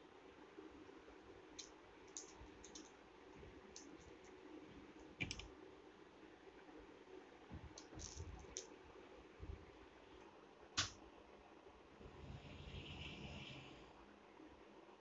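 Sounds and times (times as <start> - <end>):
hands clicking and tapping craft disc: 5.2 - 5.4.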